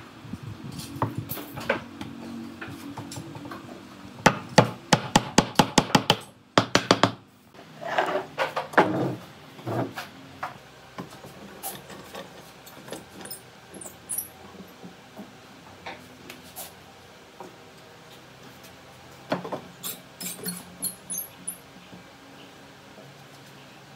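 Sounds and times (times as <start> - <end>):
sharp knocks on wood: 4.3 - 7.2.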